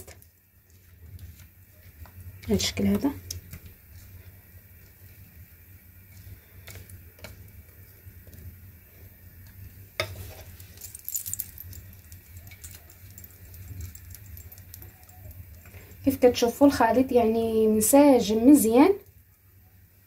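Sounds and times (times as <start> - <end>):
spatula clinking bowl: 10.0 - 15.7.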